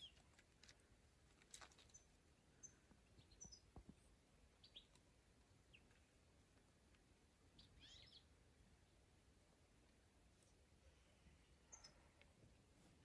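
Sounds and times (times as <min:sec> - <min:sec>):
faint bird chirps: 0:01.8 - 0:05.0, 0:07.5 - 0:08.4, 0:10.4 - 0:12.2.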